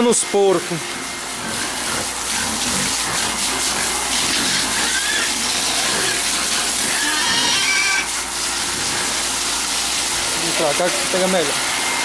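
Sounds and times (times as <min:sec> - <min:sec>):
hose water spraying: 0:00.1 - 0:12.0
high-pitched animal calls: 0:01.4 - 0:08.2.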